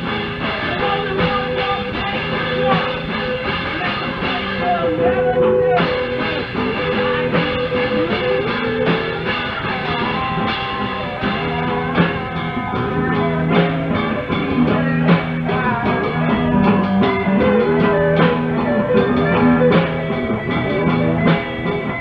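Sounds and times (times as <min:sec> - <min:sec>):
droning bassline: 0:00.0 - 0:22.0
drum kit: 0:00.0 - 0:22.0
electric guitar: 0:00.0 - 0:22.0
sung vocal: 0:00.0 - 0:22.0.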